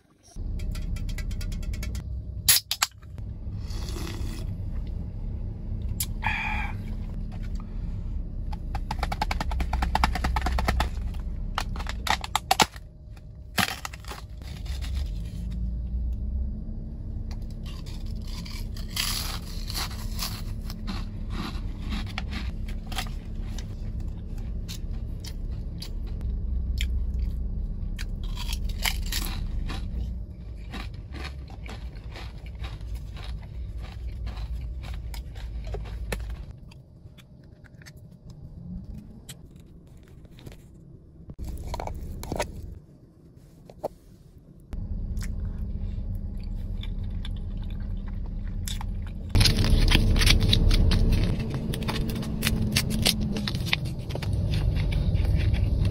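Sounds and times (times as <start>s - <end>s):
steady low hum: 0.2s - 55.9s
crunching and chewing snacks: 3.6s - 4.7s, 8.5s - 15.6s, 17.3s - 40.8s, 41.4s - 42.8s, 45.0s - 55.9s.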